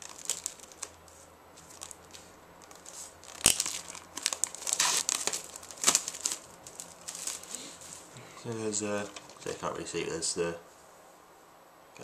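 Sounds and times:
packaging crinkling and tearing: 0.0s - 8.1s.

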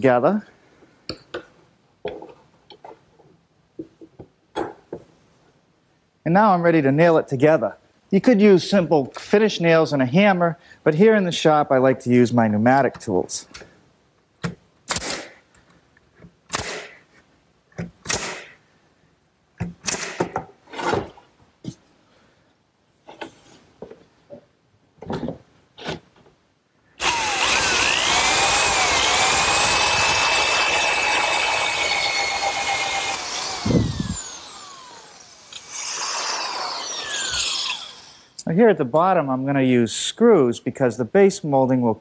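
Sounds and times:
nail gun firing: 14.9s - 15.4s, 16.5s - 17.0s, 18.0s - 18.6s, 19.8s - 20.4s
electric drill motor: 27.0s - 38.4s.

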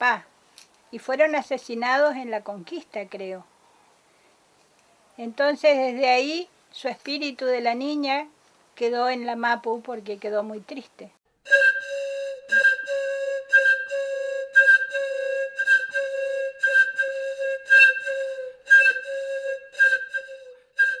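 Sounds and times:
flute blowing single note: 11.4s - 21.0s.

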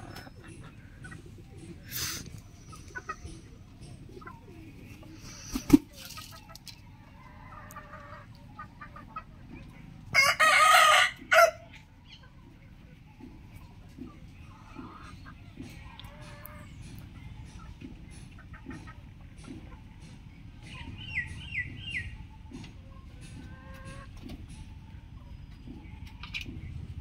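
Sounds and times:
rooster crowing: 10.2s - 11.6s.

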